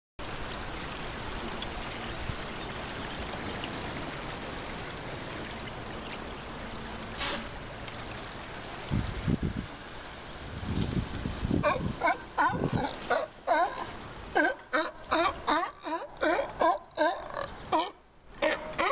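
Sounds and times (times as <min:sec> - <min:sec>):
short hiss: 0:07.1 - 0:07.6.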